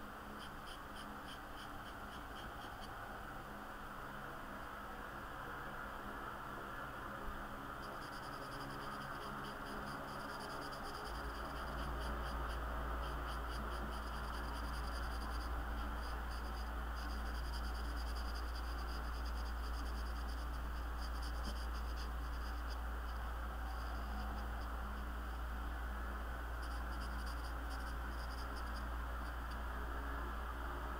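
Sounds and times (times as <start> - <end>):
low hum and hiss: 0.0 - 30.9
marker scribbling on paper: 0.4 - 2.9, 8.2 - 22.8.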